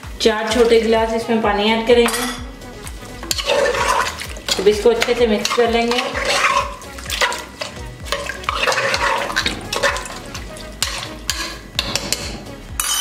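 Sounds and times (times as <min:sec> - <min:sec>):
wet squelching and sloshing: 0:02.8 - 0:11.5.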